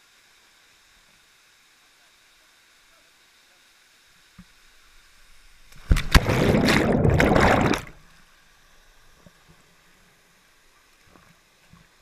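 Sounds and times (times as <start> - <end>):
churning water: 5.8 - 8.0
splash into water: 5.8 - 8.0.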